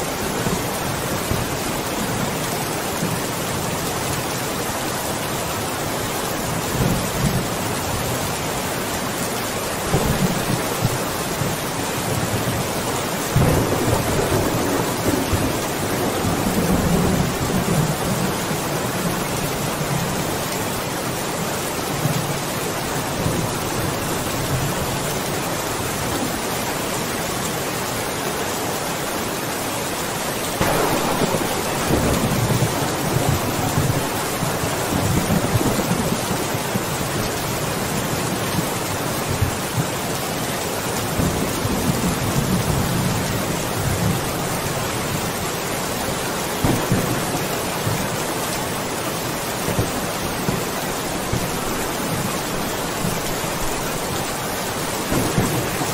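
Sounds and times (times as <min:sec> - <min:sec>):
rain falling: 0:00.0 - 0:55.9
thunder rolling: 0:13.3 - 0:18.3, 0:30.6 - 0:36.5, 0:55.0 - 0:55.9.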